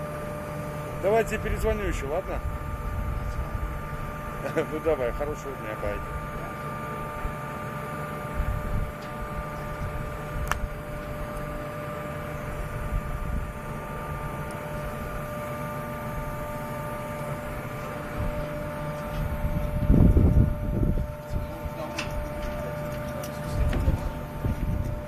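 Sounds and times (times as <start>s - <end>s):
constant whining tones: 0.0s - 25.0s
drilling rig machinery drone: 0.0s - 25.0s.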